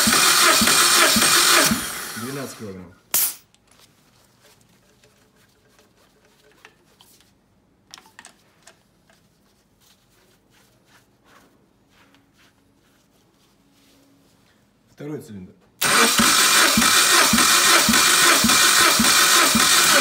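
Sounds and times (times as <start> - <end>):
faint clicks and taps of hose: 7.9 - 9.3.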